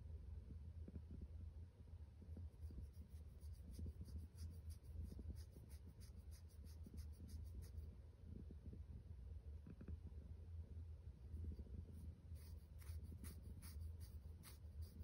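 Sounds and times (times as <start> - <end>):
straw brushing against fur: 2.7 - 7.8, 11.5 - 15.0.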